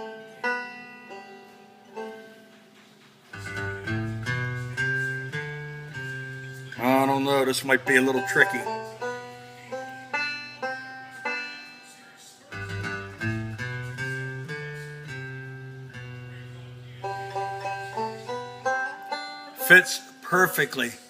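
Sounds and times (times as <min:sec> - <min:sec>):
plucked string tune: 0:00.0 - 0:21.0
held low bass notes: 0:03.4 - 0:09.2, 0:12.6 - 0:19.0.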